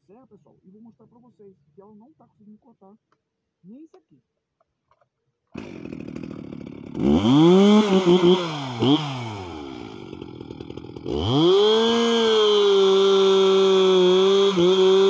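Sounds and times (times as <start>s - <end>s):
chainsaw cutting log: 5.5s - 15.0s
chainsaw starting and revving: 5.5s - 15.0s.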